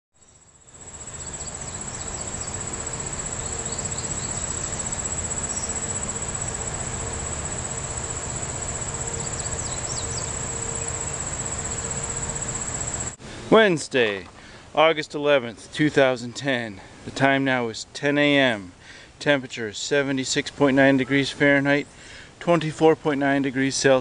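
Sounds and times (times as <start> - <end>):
insects trilling: 0.2 - 13.2
background hiss: 0.2 - 24.0.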